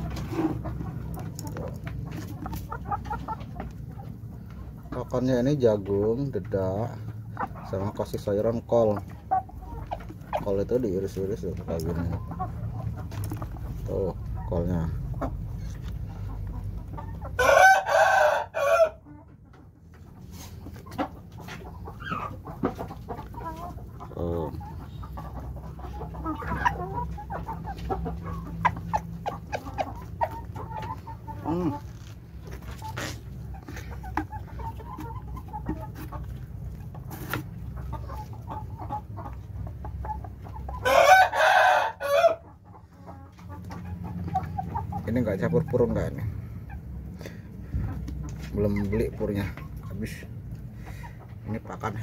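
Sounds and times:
chickens clucking: 0.0s - 52.0s
chickens pecking feed: 0.0s - 52.0s
rooster crowing: 17.4s - 19.0s, 40.8s - 42.4s.

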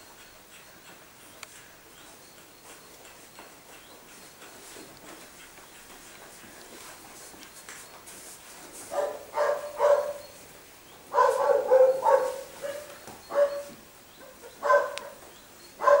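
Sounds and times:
dog barking: 8.9s - 10.4s, 11.1s - 16.0s.

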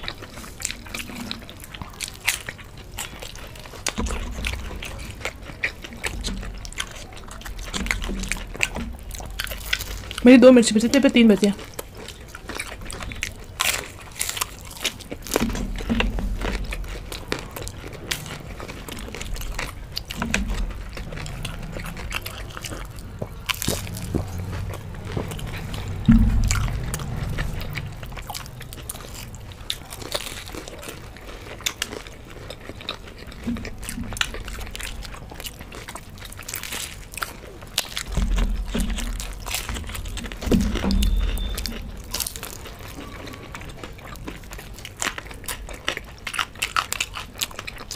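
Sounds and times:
crunching and chewing food: 0.0s - 47.9s
dull low bumps: 3.2s - 45.6s.

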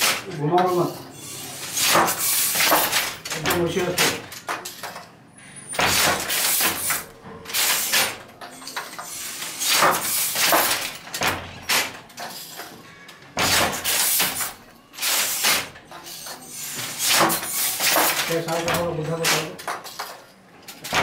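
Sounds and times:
loom clattering and thudding: 0.0s - 0.9s, 1.6s - 21.0s.

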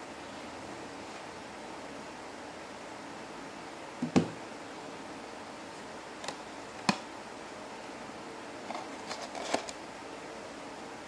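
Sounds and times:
steady hiss: 0.0s - 11.0s
hands handling cardboard box: 8.7s - 9.8s.

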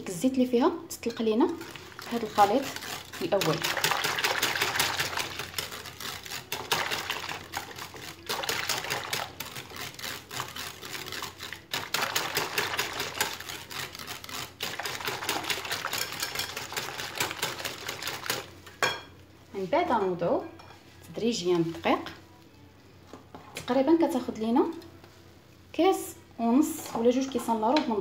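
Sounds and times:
liquid sloshing: 1.6s - 18.5s
whisk clicking against glass bowl: 1.6s - 18.5s.

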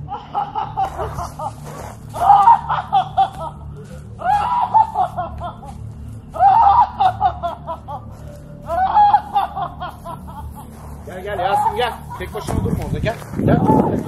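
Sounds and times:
low steady drone: 0.0s - 14.0s
high-pitched voice laughing: 0.2s - 5.8s, 8.7s - 10.6s.

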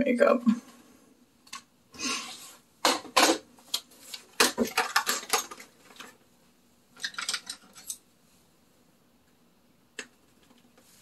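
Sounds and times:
makeup containers clattering: 2.8s - 6.2s, 6.9s - 8.0s.

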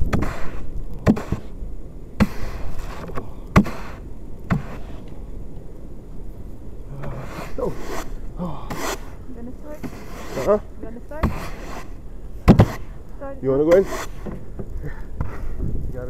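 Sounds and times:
brush sweeping snow off car: 0.1s - 1.6s, 2.2s - 5.0s, 7.1s - 14.4s.

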